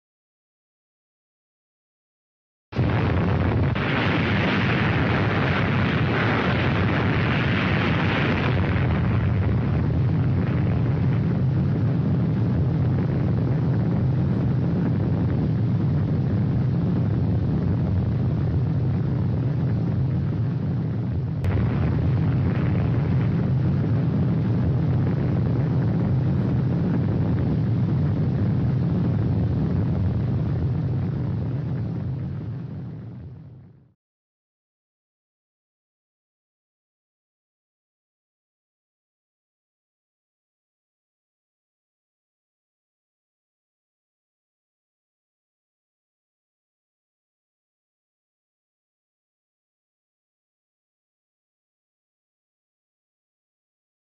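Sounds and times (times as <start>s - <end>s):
deep explosion rumble: 2.8s - 33.9s.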